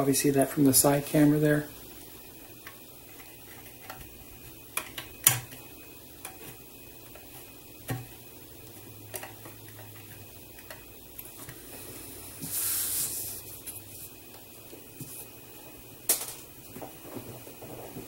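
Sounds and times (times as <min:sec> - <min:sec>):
short hiss: 0:11.6 - 0:14.2.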